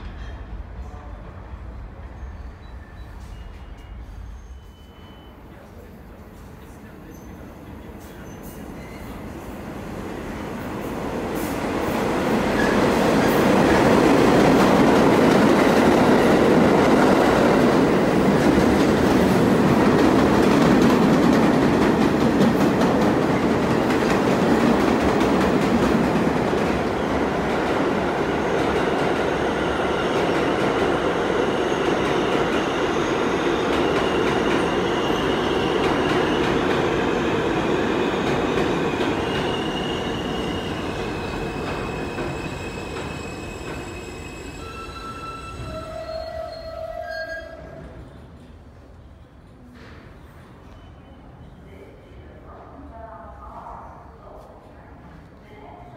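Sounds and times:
subway train rumble: 0:00.0 - 0:55.9
wheels squealing on rails: 0:02.0 - 0:05.9, 0:06.6 - 0:09.4, 0:29.3 - 0:48.5.

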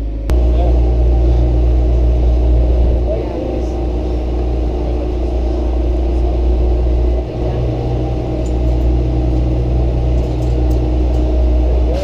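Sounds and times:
machine hum: 0:00.0 - 0:12.0
steady low rumble: 0:00.0 - 0:12.0.

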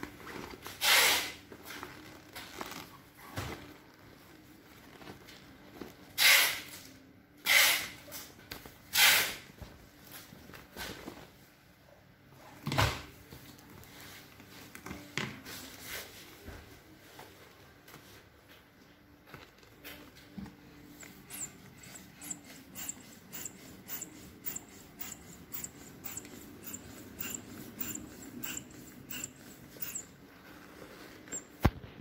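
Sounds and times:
vinyl crinkling: 0:01.5 - 0:06.0.

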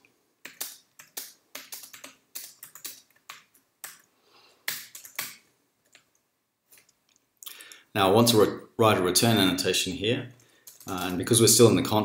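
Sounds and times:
computer keyboard typing: 0:00.4 - 0:06.2, 0:10.3 - 0:11.2.

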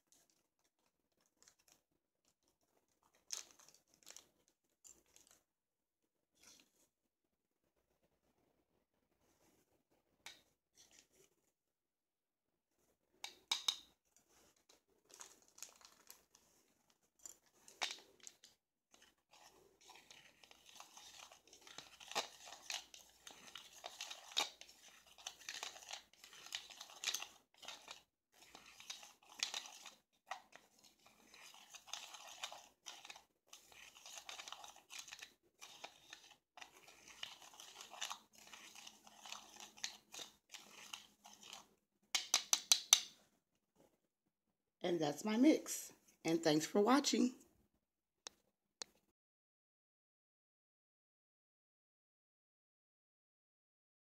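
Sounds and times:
glitter rustling in plastic bowl: 0:00.0 - 0:05.4, 0:14.2 - 0:42.5.

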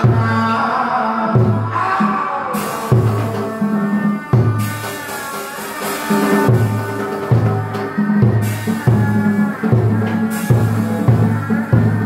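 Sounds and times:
held instrumental melody: 0:02.5 - 0:12.0
deep drum strokes: 0:02.6 - 0:12.0.

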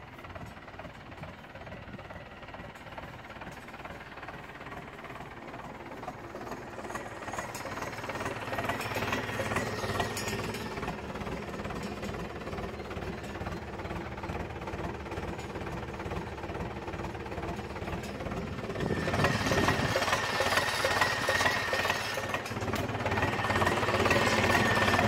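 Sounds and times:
tractor diesel engine running: 0:00.0 - 0:25.0.

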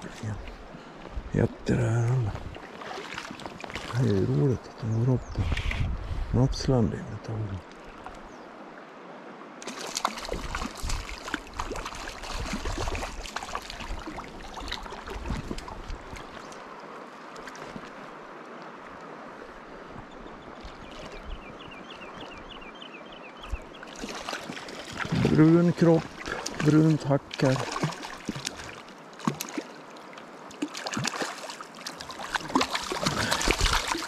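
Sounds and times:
river water running: 0:00.0 - 0:34.0
splashing and sharp knocks: 0:02.7 - 0:04.0, 0:09.6 - 0:16.5, 0:24.0 - 0:29.8, 0:30.5 - 0:34.0.

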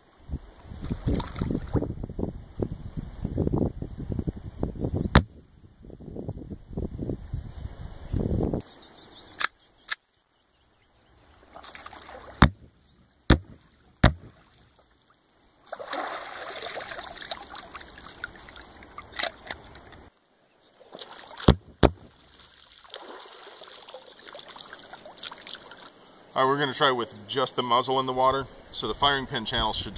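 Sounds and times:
water splashing: 0:00.8 - 0:01.9, 0:11.3 - 0:12.7, 0:13.3 - 0:20.1, 0:20.8 - 0:26.0
underwater pistol shots: 0:05.1 - 0:05.4, 0:11.6 - 0:14.6, 0:21.0 - 0:22.2.

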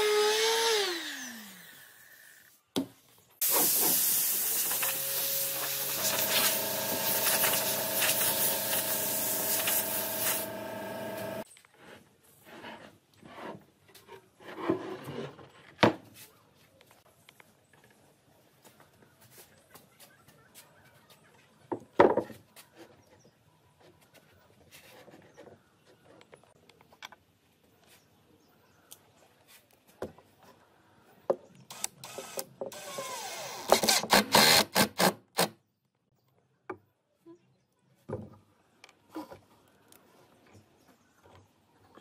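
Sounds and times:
impact driver driving screw: 0:33.6 - 0:35.5.

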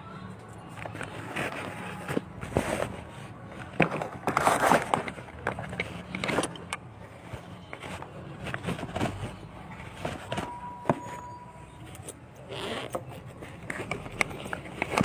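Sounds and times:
rustling: 0:00.7 - 0:15.0.

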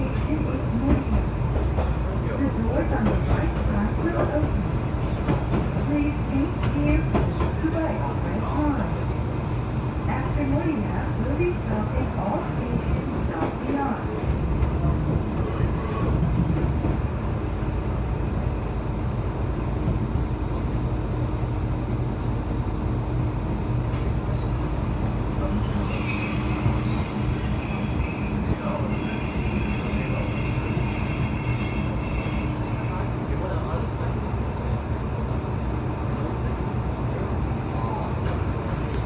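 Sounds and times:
diesel railcar rumble: 0:00.0 - 0:39.0
high wheel squeal: 0:25.4 - 0:33.4.

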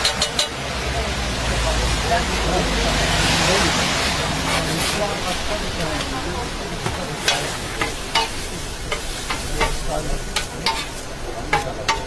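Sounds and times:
food sizzling: 0:02.9 - 0:12.0
metal spatula scraping on griddle: 0:04.0 - 0:05.6, 0:06.8 - 0:12.0.

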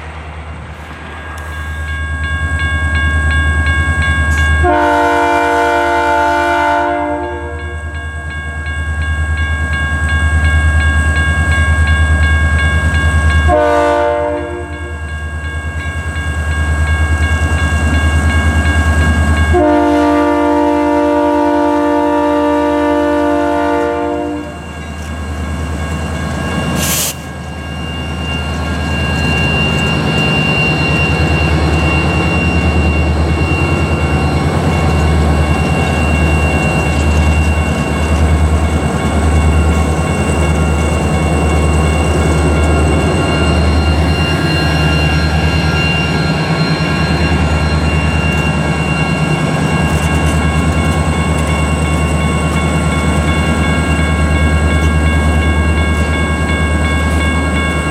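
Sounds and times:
locomotive horn: 0:04.6 - 0:07.8, 0:13.5 - 0:15.0, 0:19.5 - 0:24.6.

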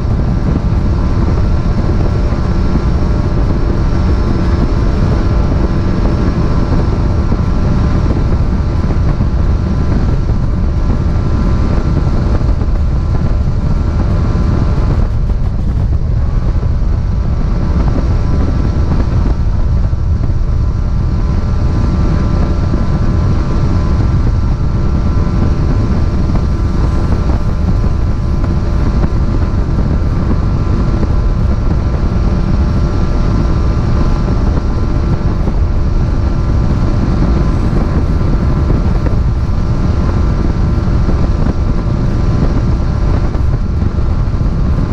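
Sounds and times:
boat engine drone: 0:00.0 - 0:44.9
water noise from hull: 0:00.0 - 0:44.9
wind on microphone: 0:00.0 - 0:44.9.

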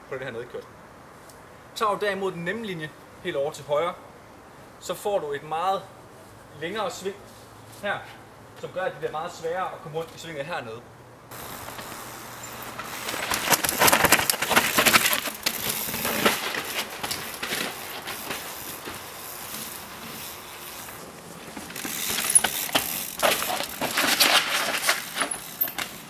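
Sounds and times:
bike clattering over bumps: 0:11.3 - 0:26.0
tyres crunching over stones: 0:11.3 - 0:26.0.

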